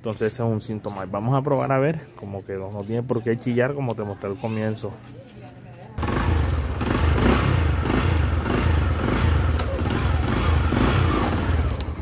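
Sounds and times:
motorcycle engine idling: 0:06.0 - 0:12.0.

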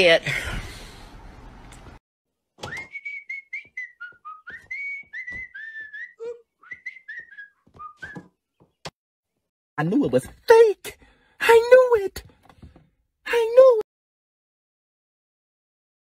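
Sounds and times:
person whistling a tune: 0:02.6 - 0:08.3.

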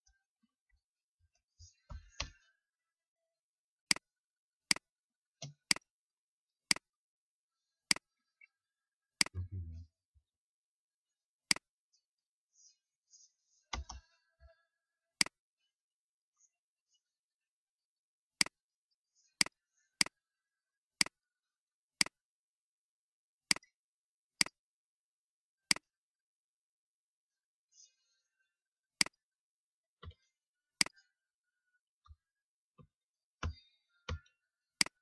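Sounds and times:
computer mouse clicks: 0:04.7 - 0:05.9, 0:13.7 - 0:14.1, 0:33.4 - 0:35.0.

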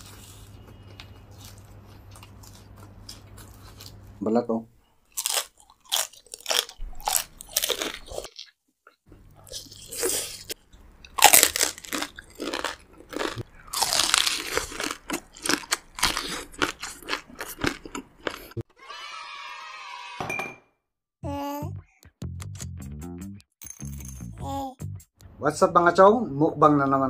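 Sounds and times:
chewing: 0:00.0 - 0:04.2, 0:05.1 - 0:18.6
crunching bites: 0:05.1 - 0:08.6, 0:09.4 - 0:18.6.

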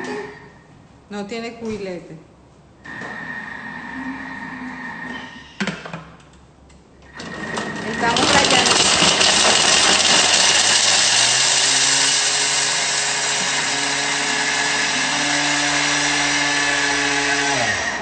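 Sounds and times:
food processor grinding whir: 0:02.9 - 0:04.9, 0:07.1 - 0:18.0.

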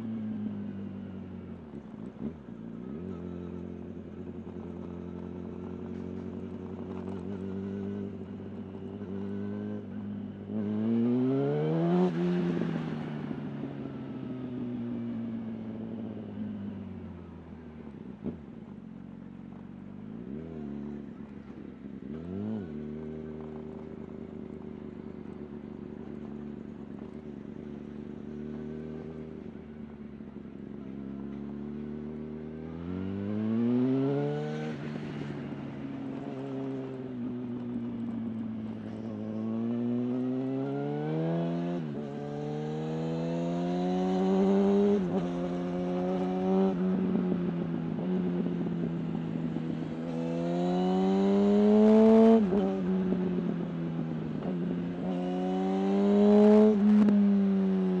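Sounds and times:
motorcycle engine revving: 0:00.0 - 0:14.0, 0:20.0 - 0:58.0.

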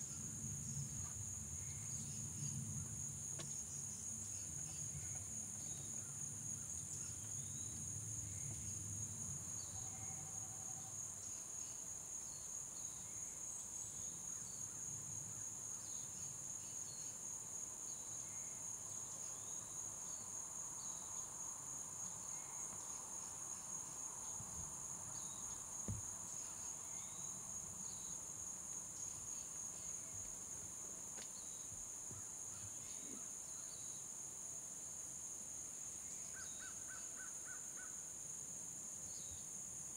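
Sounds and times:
insects chorus: 0:00.0 - 0:39.9
dull thump: 0:25.8 - 0:26.2.

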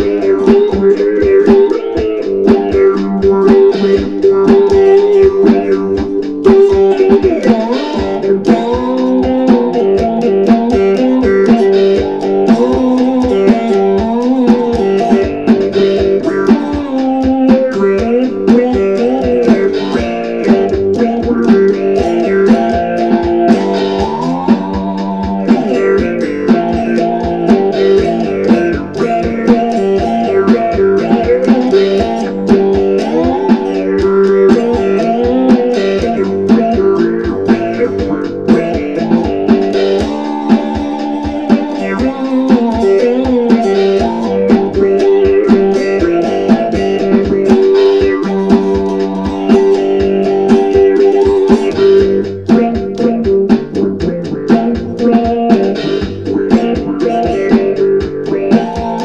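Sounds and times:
electric guitar funk riff: 0:00.0 - 0:59.0
steady beat: 0:00.0 - 0:59.0.

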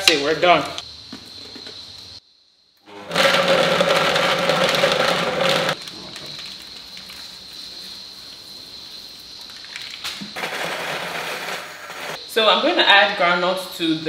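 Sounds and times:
electric blender motor running: 0:02.8 - 0:05.8.

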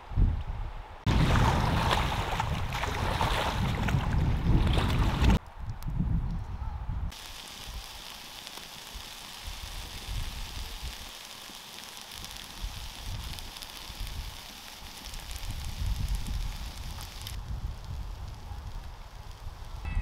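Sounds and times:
campfire crackles: 0:07.1 - 0:20.0
fire hiss: 0:07.1 - 0:20.0.

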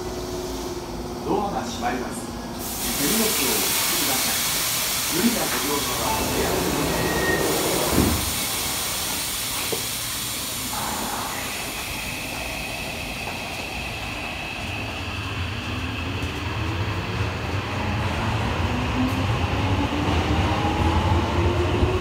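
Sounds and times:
high hiss: 0:02.6 - 0:15.4.

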